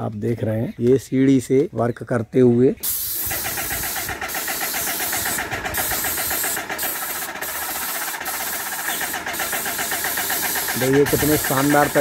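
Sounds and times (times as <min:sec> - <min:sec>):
paint spray hiss: 0:02.8 - 0:12.0
paint sprayer pump ticking: 0:02.8 - 0:12.0.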